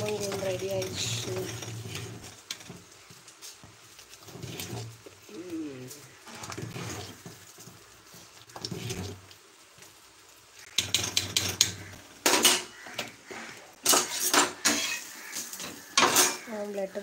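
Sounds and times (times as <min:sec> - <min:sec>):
ladle stirring thick liquid: 0:04.0 - 0:05.2, 0:06.1 - 0:09.4.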